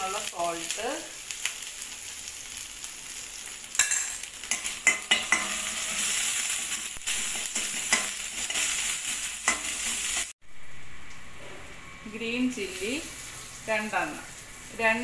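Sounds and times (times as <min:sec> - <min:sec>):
paste sizzling in hot oil: 0:00.0 - 0:10.4, 0:12.6 - 0:15.0
spoon scraping a pan: 0:03.8 - 0:10.3.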